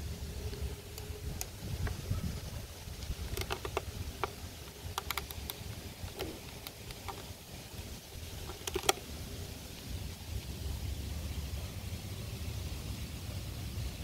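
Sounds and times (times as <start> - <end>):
wind rumble on microphone: 0.0 - 4.6
model tank hatches clicking: 3.0 - 7.3, 8.4 - 9.0.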